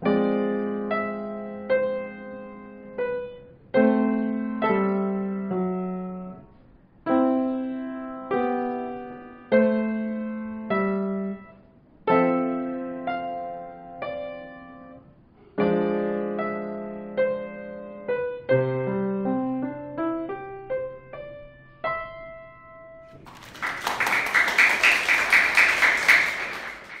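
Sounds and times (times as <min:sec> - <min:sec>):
upright piano melody: 0:00.0 - 0:06.4, 0:15.6 - 0:27.0
people clapping: 0:23.2 - 0:27.0.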